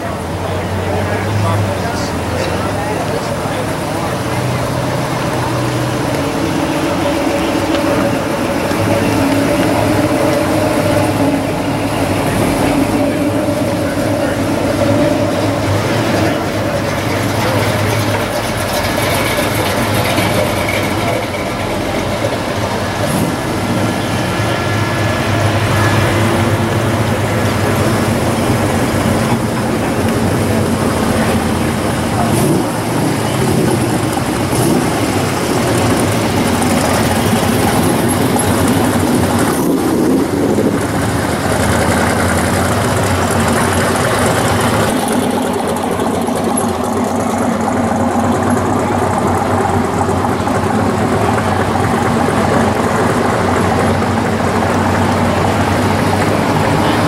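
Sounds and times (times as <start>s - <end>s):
cars driving past slowly: 0.0s - 57.0s.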